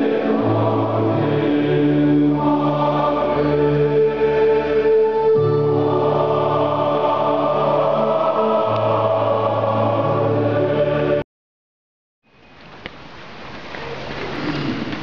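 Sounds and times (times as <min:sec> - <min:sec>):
choral music with held chords: 0:00.0 - 0:11.3.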